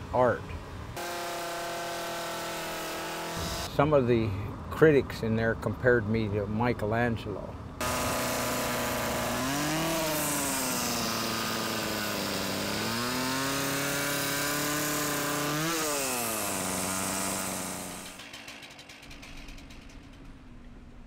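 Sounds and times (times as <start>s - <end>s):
chainsaw engine revving: 1.0s - 3.8s, 7.8s - 20.2s.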